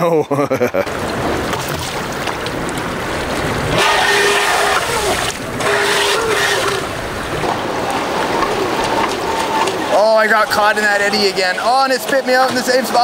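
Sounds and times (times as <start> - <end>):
river rapids rushing: 0.9 - 13.0.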